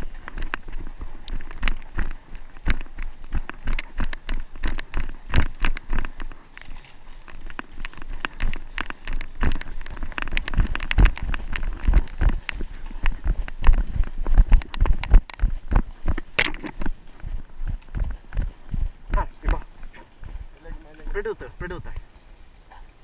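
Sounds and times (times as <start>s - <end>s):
gear knocking: 0.0s - 17.0s
twigs snapping and rustling: 0.0s - 18.5s
running footsteps on twigs: 0.0s - 23.0s.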